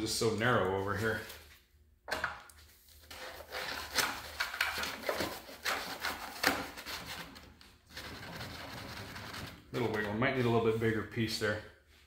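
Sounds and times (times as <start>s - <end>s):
foam scraping against boat hull: 7.9s - 10.6s.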